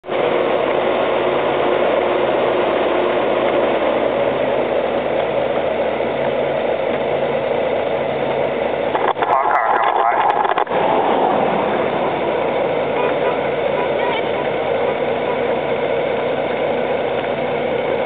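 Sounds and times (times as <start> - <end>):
steady rushing noise: 0.0 - 18.0
motorcycle engine running: 10.0 - 18.0.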